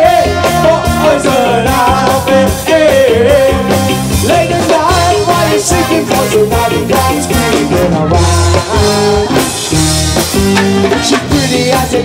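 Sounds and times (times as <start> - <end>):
bass: 0.0 - 12.0
drums: 0.0 - 12.0
guitar: 0.0 - 12.0
lead melody line: 0.0 - 12.0
ska band playing: 0.0 - 12.0.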